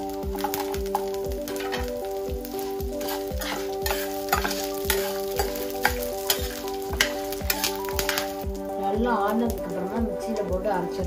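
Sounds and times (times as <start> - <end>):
background music with beat: 0.0 - 11.0
food sizzling in a pan: 0.0 - 11.0
spatula scraping a pan: 0.4 - 2.0, 2.6 - 8.4.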